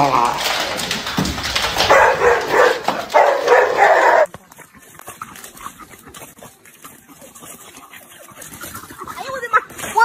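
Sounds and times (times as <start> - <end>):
dog barking loudly: 1.8 - 4.3.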